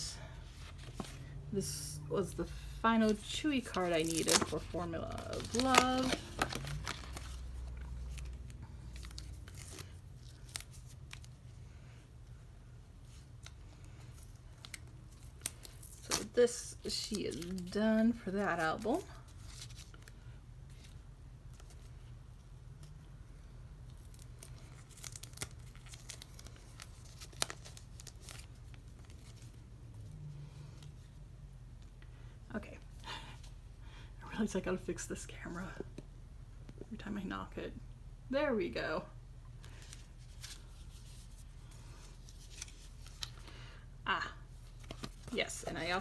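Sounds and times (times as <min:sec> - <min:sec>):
packaging crinkling and rustling: 0:03.2 - 0:11.4, 0:23.9 - 0:29.6, 0:39.6 - 0:43.5.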